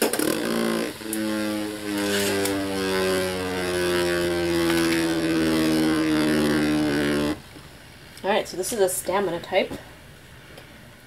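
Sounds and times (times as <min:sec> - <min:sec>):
spinning top whirring: 0:00.0 - 0:07.5.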